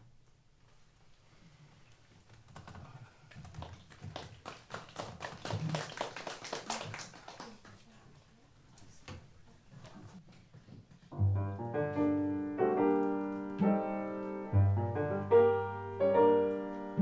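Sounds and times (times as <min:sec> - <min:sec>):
audience clapping: 0:03.3 - 0:07.9.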